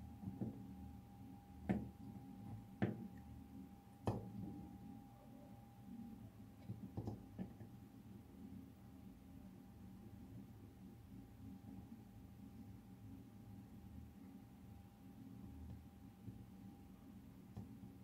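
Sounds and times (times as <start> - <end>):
faint steady high tone: 0.0 - 6.6.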